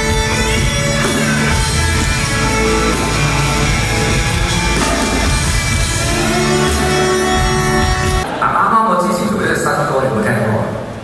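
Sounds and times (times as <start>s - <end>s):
electric guitar: 0.0s - 8.2s
rock band playing: 0.0s - 8.4s.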